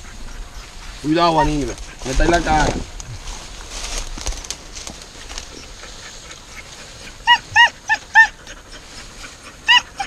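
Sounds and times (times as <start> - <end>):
dog yelping: 6.5 - 10.0.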